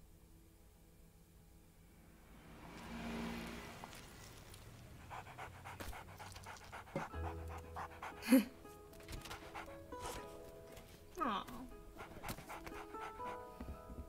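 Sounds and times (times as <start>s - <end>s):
dog panting: 4.5s - 10.3s, 11.9s - 13.7s.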